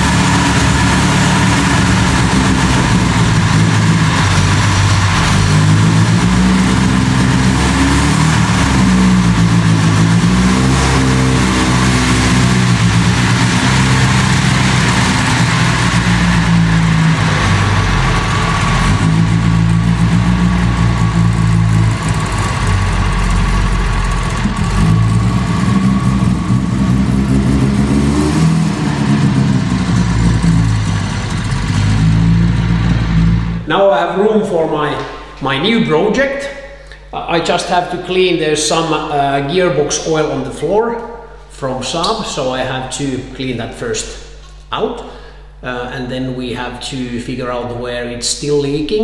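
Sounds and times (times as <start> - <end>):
car engine revving: 0.0 - 33.8.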